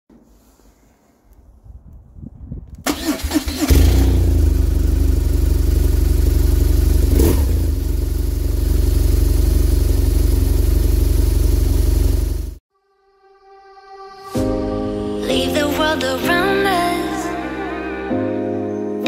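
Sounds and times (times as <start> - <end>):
motorcycle starter cranking: 2.8 - 4.6
motorcycle engine idling: 4.0 - 12.6.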